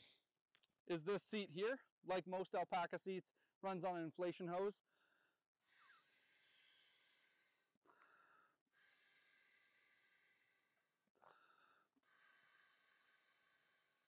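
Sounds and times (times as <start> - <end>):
exhaled breaths into a hose: 4.9 - 14.0.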